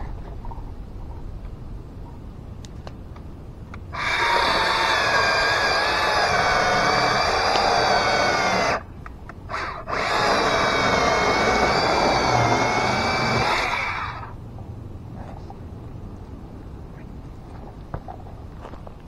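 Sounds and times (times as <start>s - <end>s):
electric chainsaw cutting log: 3.9s - 8.9s, 9.5s - 14.4s.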